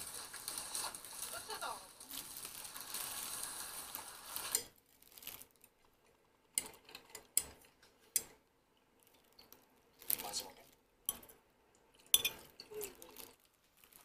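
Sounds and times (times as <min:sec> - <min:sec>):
food sizzling in a frying pan: 0:00.0 - 0:05.4
kitchen utensils clinking: 0:12.1 - 0:13.4.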